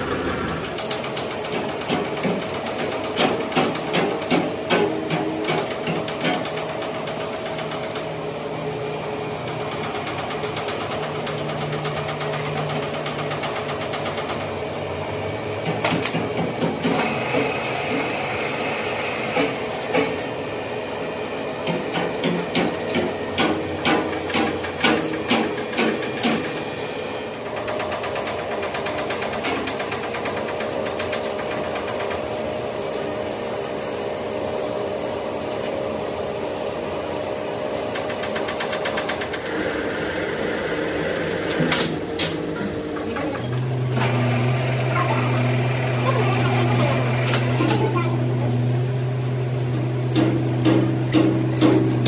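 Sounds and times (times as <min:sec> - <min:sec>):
machinery humming: 0:00.0 - 0:52.0
sharp metallic knocks and clicks: 0:00.7 - 0:08.1, 0:15.6 - 0:17.6, 0:21.6 - 0:26.7, 0:50.0 - 0:52.0.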